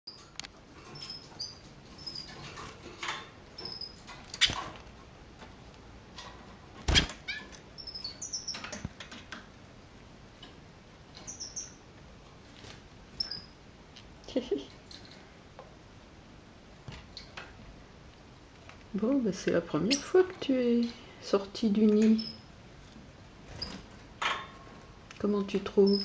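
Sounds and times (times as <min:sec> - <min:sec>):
birds giving high chirps: 0:11.2 - 0:11.8.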